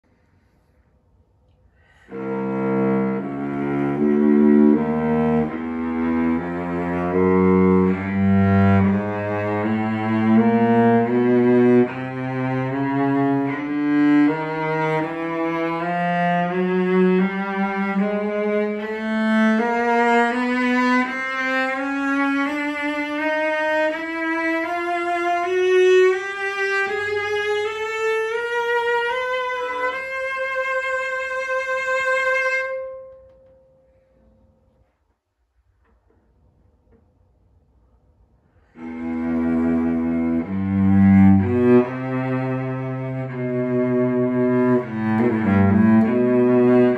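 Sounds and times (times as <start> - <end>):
cello bowed rising scale: 1.8 - 35.0, 38.2 - 46.9.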